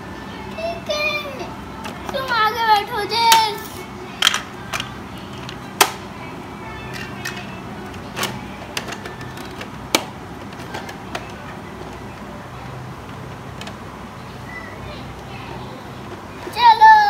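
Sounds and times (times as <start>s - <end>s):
plastic toy clicks and clacks: 4.2s - 6.0s, 6.9s - 12.1s.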